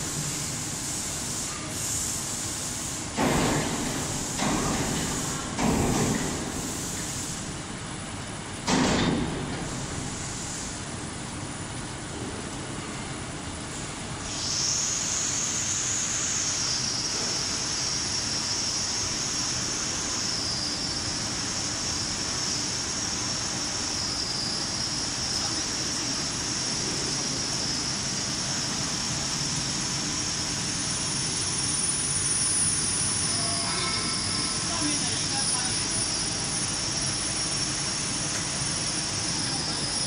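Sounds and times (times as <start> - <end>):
printing press running: 3.0 - 11.4.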